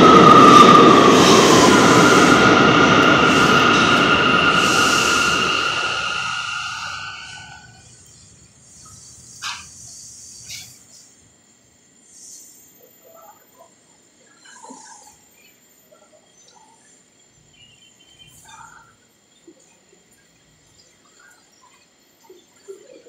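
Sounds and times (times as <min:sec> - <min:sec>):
high-pitched whine: 0:00.0 - 0:11.0
subway train rumble: 0:00.0 - 0:13.6.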